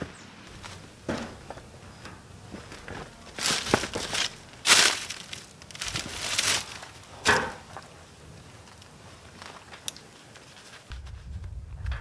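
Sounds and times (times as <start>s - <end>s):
footsteps crunching on dry leaves: 0.0s - 7.2s.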